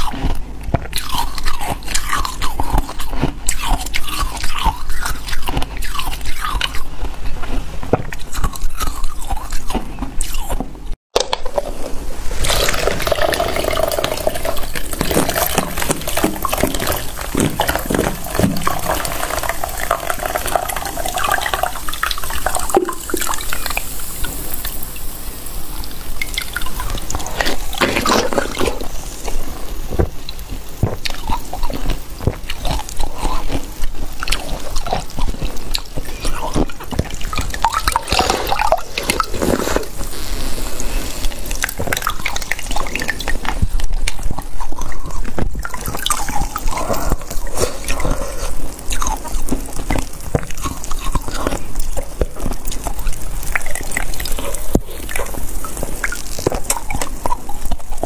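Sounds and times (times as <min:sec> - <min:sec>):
gurgling pour: 0:11.4 - 0:31.6, 0:35.8 - 0:40.1, 0:41.4 - 0:58.0
liquid dripping and splashing: 0:12.3 - 0:39.5, 0:41.5 - 0:58.0.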